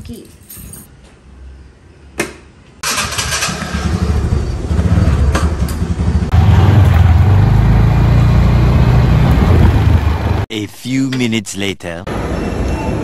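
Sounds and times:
scooter engine running: 2.8 - 10.4
wind on microphone: 9.0 - 10.1.

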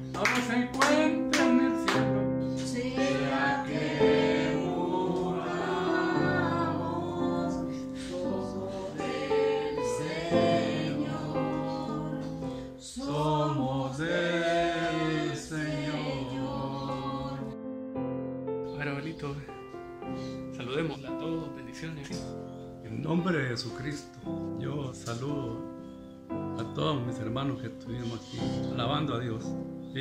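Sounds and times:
instrumental accompaniment: 0.0 - 13.4, 14.2 - 30.0
voices singing: 0.2 - 17.6.

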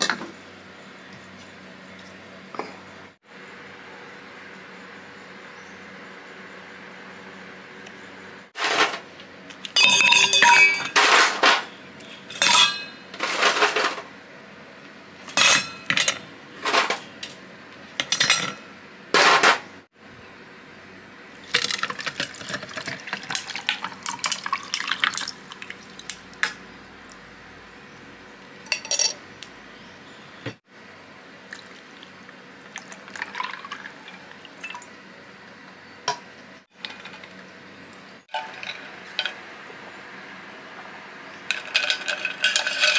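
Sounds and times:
kitchenware and glass clinking: 9.7 - 14.0, 15.3 - 17.0, 18.0 - 19.6, 28.7 - 29.2, 38.3 - 39.4, 41.5 - 42.9
tea pouring onto ice: 21.5 - 26.0, 32.7 - 34.8.

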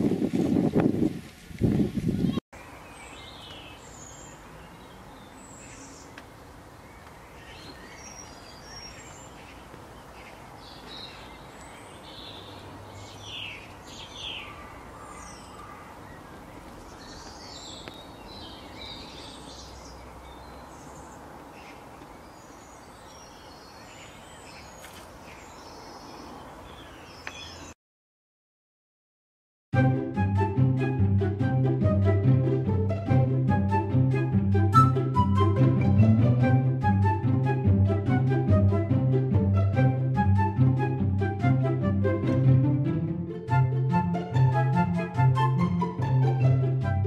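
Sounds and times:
small birds chirping: 2.0 - 27.8.

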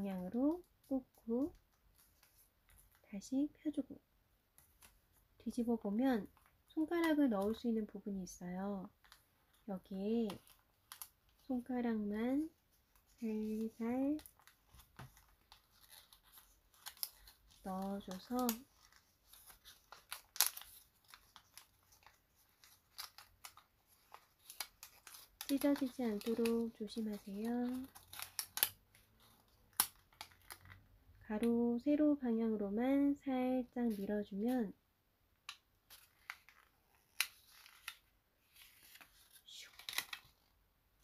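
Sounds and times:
paper crinkling and crackling: 0.1 - 3.1, 4.5 - 5.3, 8.8 - 31.5, 35.5 - 40.6.

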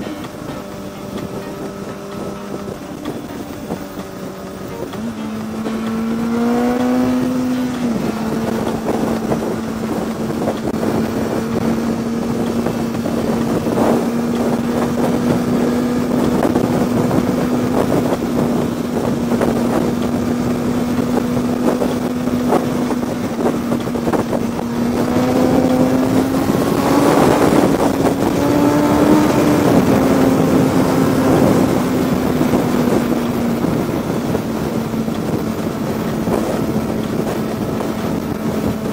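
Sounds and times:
motorcycle engine running: 0.0 - 38.9
wind rushing on microphone: 0.0 - 38.9.

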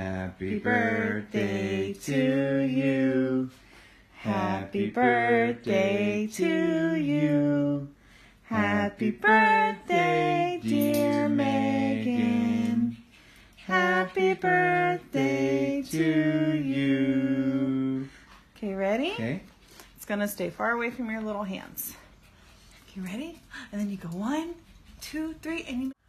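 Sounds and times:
woman singing slow song: 0.0 - 18.2.

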